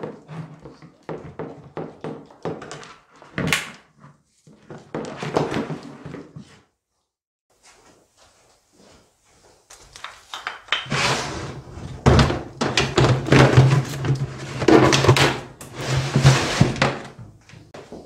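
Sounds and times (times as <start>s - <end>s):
rummaging through plastic tub: 10.8s - 17.7s.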